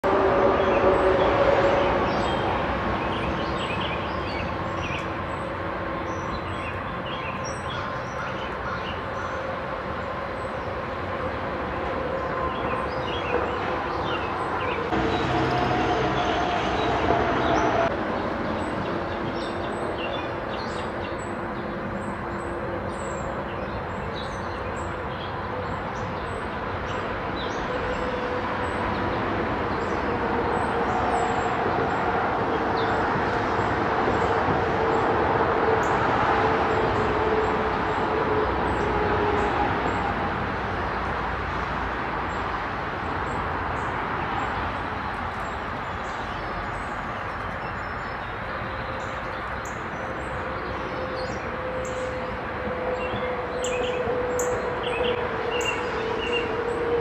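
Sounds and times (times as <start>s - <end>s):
passing vehicles rumbling: 0.0s - 57.0s
low drawn-out hum: 9.4s - 24.1s.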